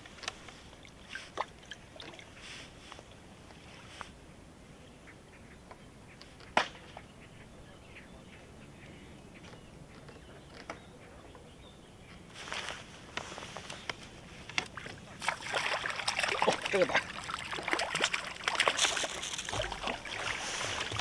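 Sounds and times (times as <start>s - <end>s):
rustling noise: 2.4s - 4.2s, 12.3s - 15.2s, 18.7s - 21.0s.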